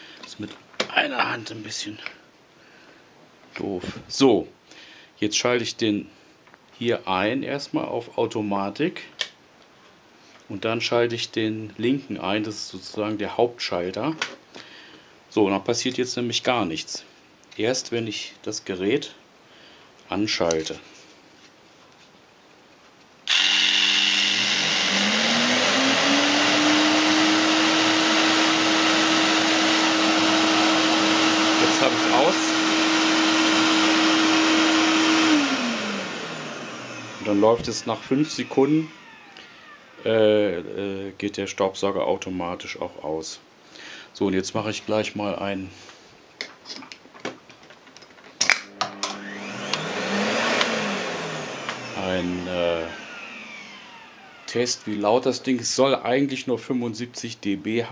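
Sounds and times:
electric jigsaw running: 0:23.3 - 0:40.0, 0:48.7 - 0:54.5
workshop vacuum motor hum: 0:23.3 - 0:40.1, 0:48.5 - 0:54.6.

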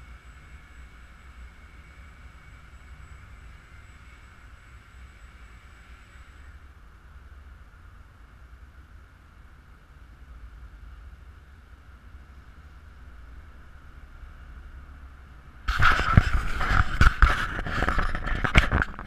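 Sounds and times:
camera handling noise: 0:15.7 - 0:19.0.

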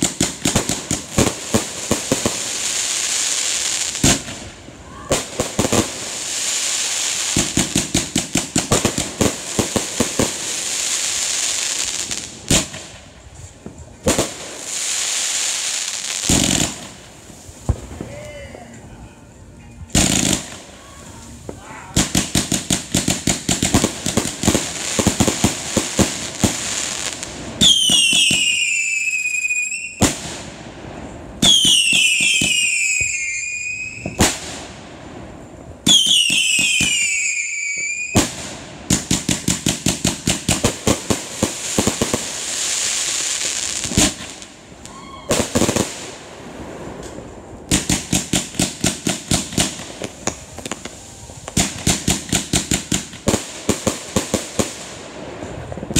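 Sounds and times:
firework volleys bursting: 0:00.0 - 0:18.8, 0:19.9 - 0:55.9
whistling firework shots: 0:21.5 - 0:30.4, 0:31.4 - 0:34.7, 0:35.8 - 0:41.2, 0:41.8 - 0:46.2.

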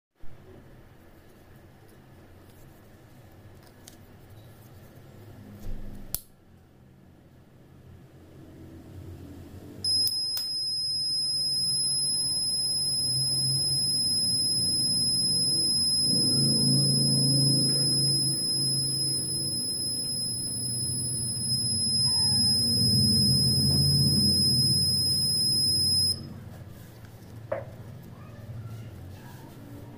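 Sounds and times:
piezo buzzer high-pitched tone: 0:09.8 - 0:26.3.

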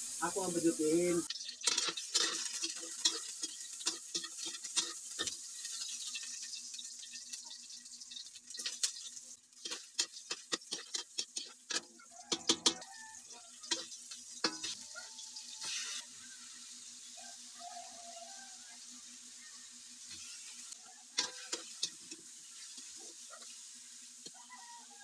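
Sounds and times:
food sizzling in oil: 0:00.0 - 0:25.0
taps and clicks in wok: 0:09.6 - 0:12.9, 0:13.6 - 0:14.8.

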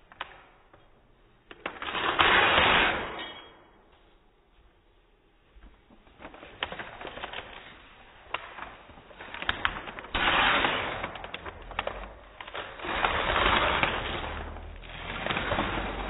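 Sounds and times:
wrapping paper crinkling: 0:05.9 - 0:10.2.

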